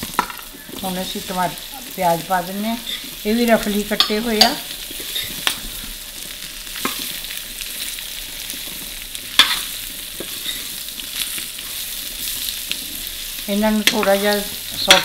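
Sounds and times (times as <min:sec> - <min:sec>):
onions sizzling in oil: 0:00.0 - 0:15.0
metal spoon scraping a pan: 0:02.8 - 0:05.8, 0:07.8 - 0:15.0.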